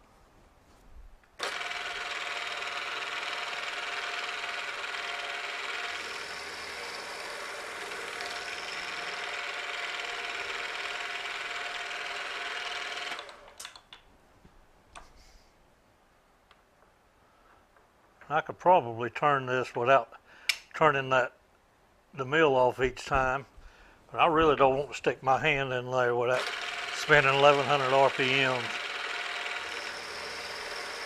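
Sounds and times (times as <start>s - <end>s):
milling machine cutting steel: 1.4s - 13.5s, 26.4s - 31.0s.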